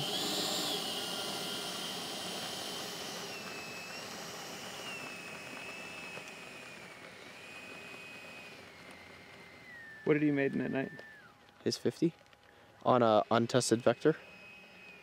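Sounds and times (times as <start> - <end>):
electric ducted fan whine: 0.0 - 15.0.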